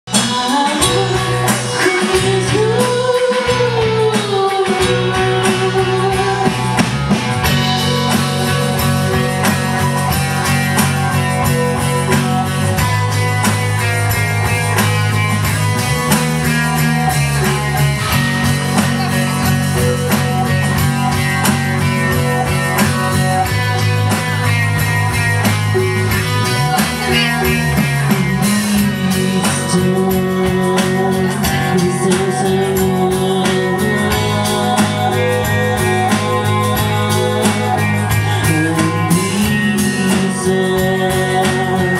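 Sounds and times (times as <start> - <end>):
bass guitar: 0.0 - 41.9
drum kit: 0.0 - 41.9
electric guitar: 0.1 - 41.9.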